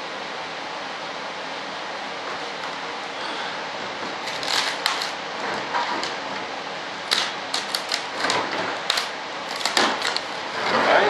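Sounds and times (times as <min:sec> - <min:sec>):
plastic parts clicking and crackling: 0:04.2 - 0:05.2, 0:07.1 - 0:10.4.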